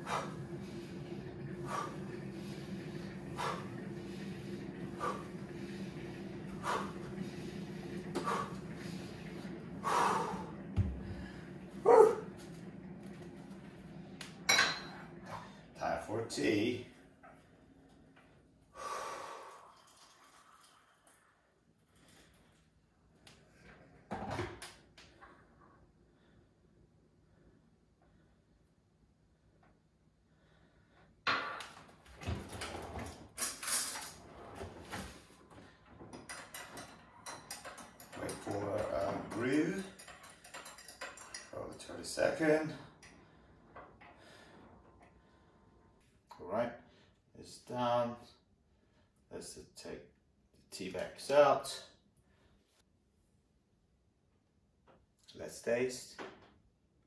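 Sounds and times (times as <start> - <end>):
man breathing hard: 9.8 - 11.5, 18.7 - 19.8
grunting exhale: 9.8 - 12.1
kitchen knocks and rustles: 31.3 - 41.5.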